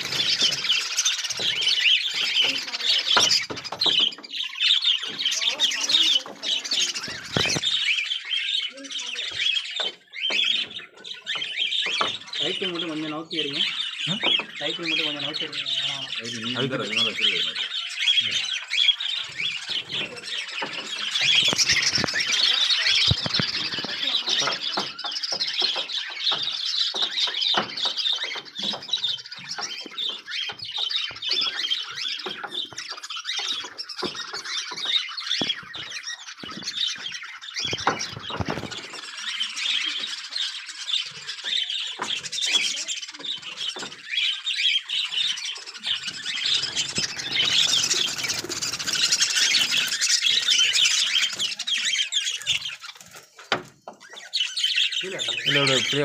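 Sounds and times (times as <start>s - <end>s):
wings flapping: 0.0s - 4.2s, 5.0s - 7.9s, 19.2s - 40.2s, 45.7s - 53.8s
lovebirds chattering and screeching: 0.0s - 56.0s.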